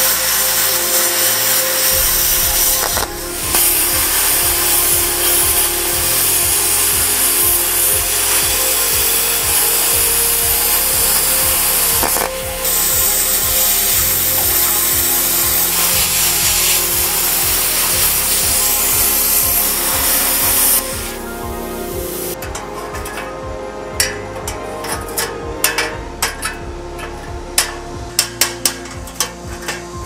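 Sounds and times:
plasma cutter hissing: 0.0s - 23.3s.

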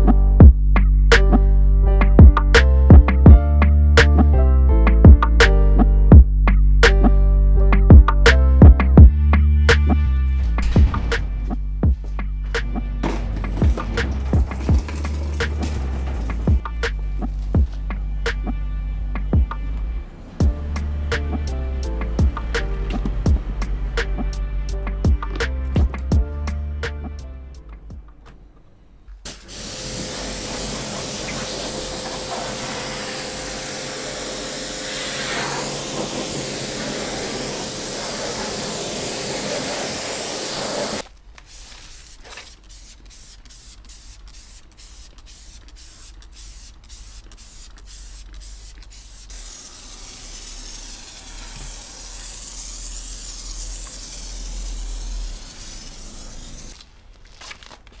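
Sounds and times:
pressure washer spraying: 12.5s - 18.3s, 29.3s - 56.8s.

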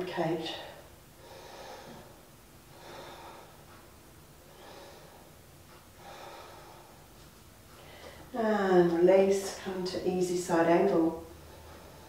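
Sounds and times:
woman breathing slowly: 0.5s - 8.4s, 11.2s - 12.0s.

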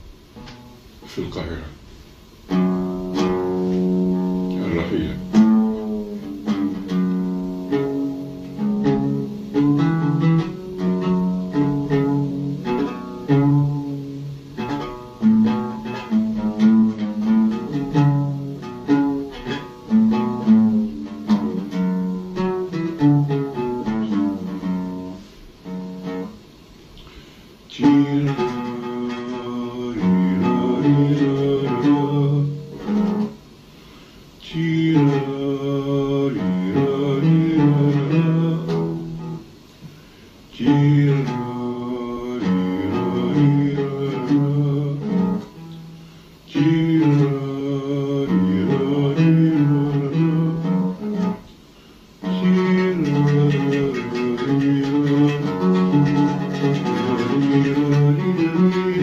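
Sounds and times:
oud melody: 0.0s - 26.8s, 27.8s - 33.6s, 34.5s - 39.8s, 40.6s - 51.5s, 52.2s - 59.0s
man singing: 3.1s - 6.9s, 27.7s - 33.4s, 34.4s - 39.4s, 40.5s - 45.8s, 46.5s - 51.4s, 52.2s - 59.0s.

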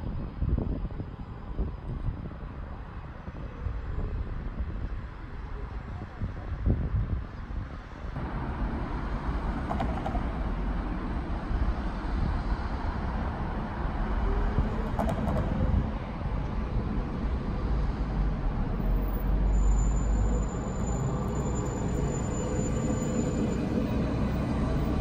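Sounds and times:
street traffic: 0.0s - 25.0s
wind rumble: 0.0s - 25.0s
tram running on tracks: 7.7s - 25.0s
high wheel squeal: 19.0s - 25.0s.

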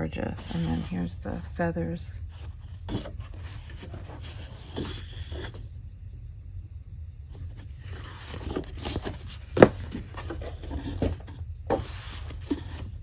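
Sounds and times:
paper rustling: 2.3s - 5.6s, 7.4s - 13.0s.

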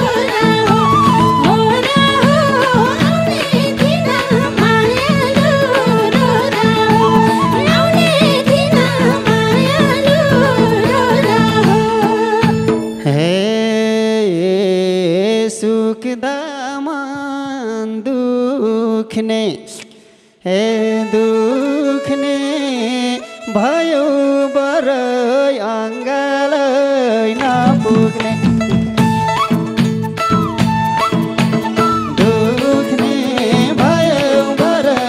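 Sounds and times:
band playing: 0.0s - 13.4s, 27.4s - 35.0s
man singing: 13.0s - 29.0s, 31.8s - 35.0s.

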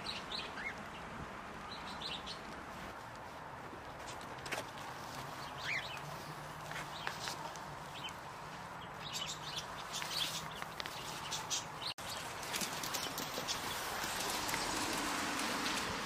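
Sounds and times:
small clicks and rustling: 12.3s - 15.9s.

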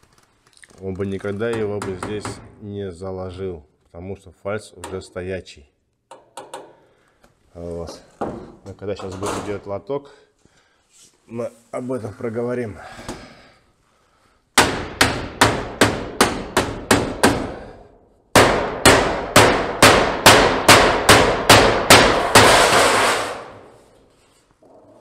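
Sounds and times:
strikes on sheet-metal roofing: 14.6s - 23.7s
sheet metal rattling: 22.0s - 23.6s.

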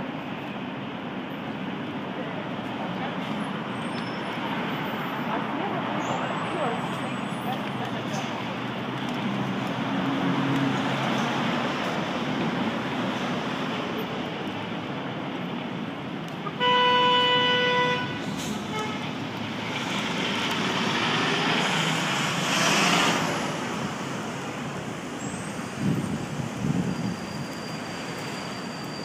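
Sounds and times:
city street traffic: 0.0s - 29.0s
vehicle horn: 16.4s - 19.0s
vehicle passing: 19.5s - 24.4s.

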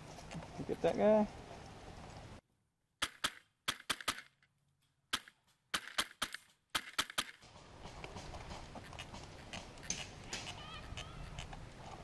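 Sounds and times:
outdoor background noise: 0.0s - 12.0s
airsoft gun shots: 3.0s - 4.3s.

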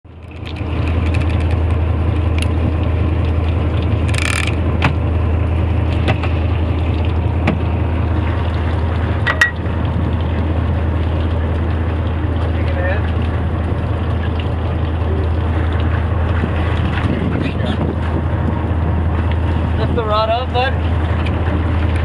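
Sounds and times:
boat engine droning: 0.1s - 22.0s
sharp clicks and knocks: 0.2s - 1.6s, 4.1s - 5.0s.

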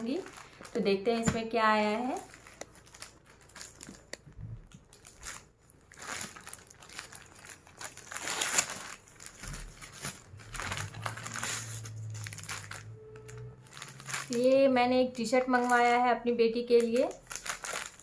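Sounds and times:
packaging crinkling and rustling: 0.0s - 18.0s.

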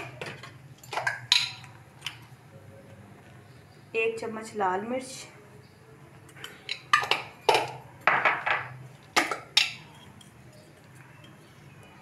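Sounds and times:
metal spoon clinking on dishes: 0.0s - 1.8s, 6.3s - 11.6s.

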